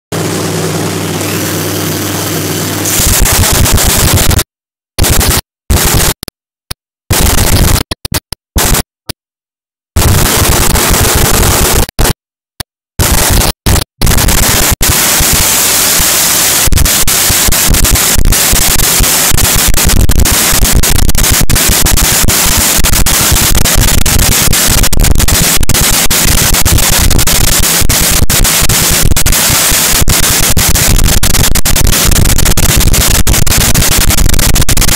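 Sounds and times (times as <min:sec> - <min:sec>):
drag racing engine roaring: 0:00.1 - 0:04.3.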